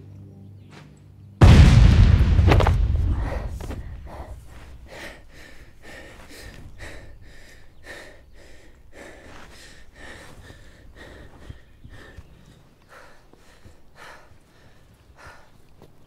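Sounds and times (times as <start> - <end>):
explosion rumble: 1.4 - 4.9
man breathing hard: 3.2 - 15.9.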